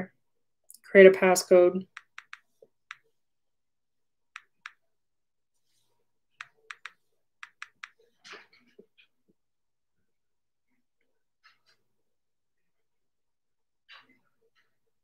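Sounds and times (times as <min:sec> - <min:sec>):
taps on touchscreen: 0:01.9 - 0:03.0, 0:04.4 - 0:04.8, 0:06.4 - 0:08.0.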